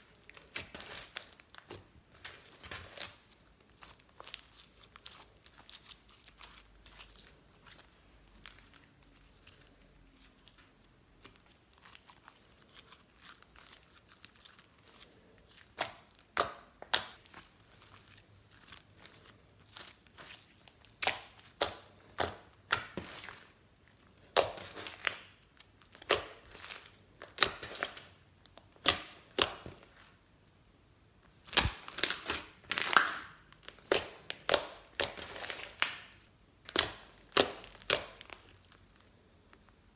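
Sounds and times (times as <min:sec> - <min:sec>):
slime squeezed with sticky pops: 0:31.4 - 0:39.0.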